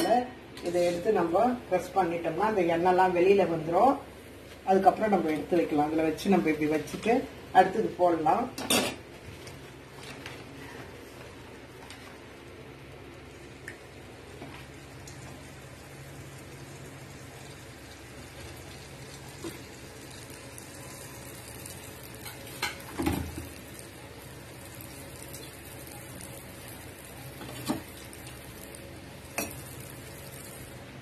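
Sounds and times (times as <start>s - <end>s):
dough sizzling in hot oil: 11.9s - 31.0s.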